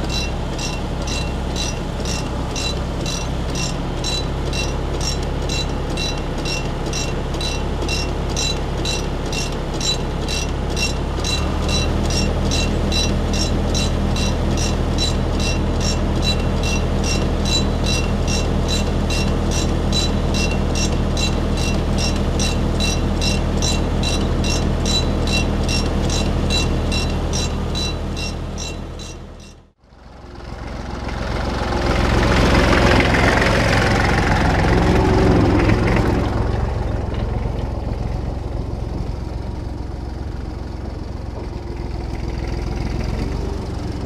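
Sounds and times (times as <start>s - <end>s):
rapid mechanical ticking: 0.0s - 29.7s
tractor diesel engine droning: 0.0s - 44.0s.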